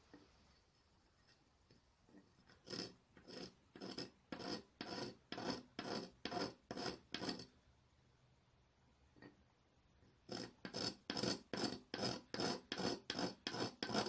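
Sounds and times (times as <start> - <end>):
stone scraping glass tiles: 2.4 - 7.5.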